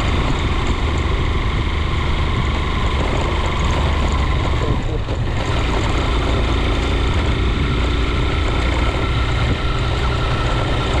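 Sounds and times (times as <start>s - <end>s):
road noise: 0.0s - 11.0s
vehicle engine running: 0.0s - 11.0s.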